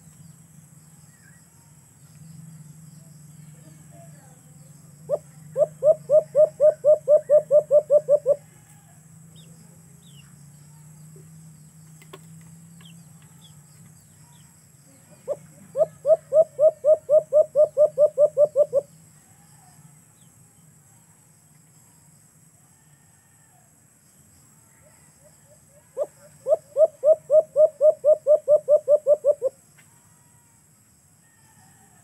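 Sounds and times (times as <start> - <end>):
faint low hum: 0.0 - 32.0
dove cooing: 5.1 - 8.4, 15.2 - 18.9, 26.0 - 29.6.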